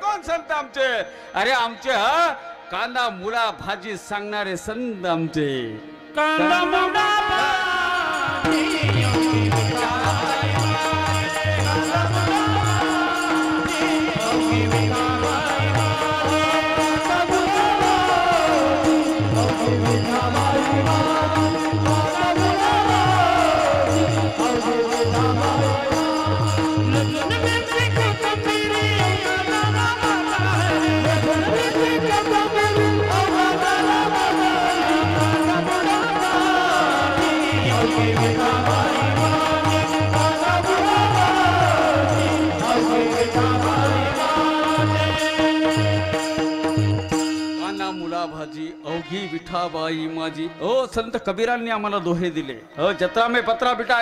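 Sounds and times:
harmonium drone: 0.0 - 51.4
men singing in chorus: 6.2 - 48.1.

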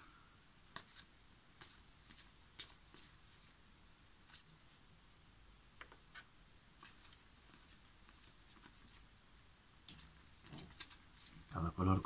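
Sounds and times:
playing cards clicking and sliding: 0.7 - 3.2, 9.9 - 11.5.

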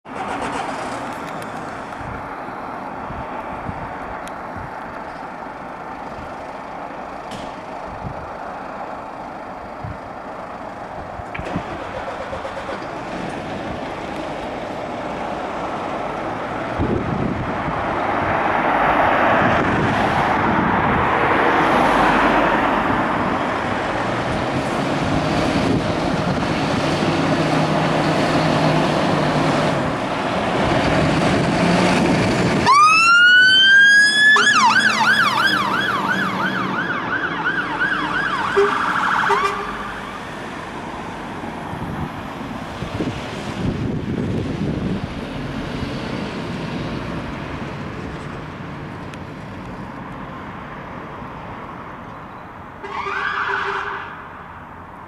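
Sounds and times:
fire engine diesel engines: 0.0 - 55.0
electronic siren wailing and yelping: 32.6 - 40.2.

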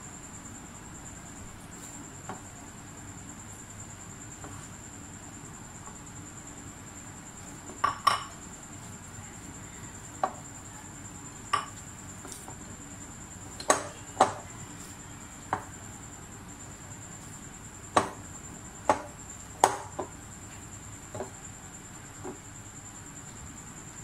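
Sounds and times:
faint high-pitched whine: 0.0 - 24.0
dough kneaded by hand: 0.5 - 2.8, 3.4 - 24.0
knocks and clinks against glass: 7.8 - 8.4.

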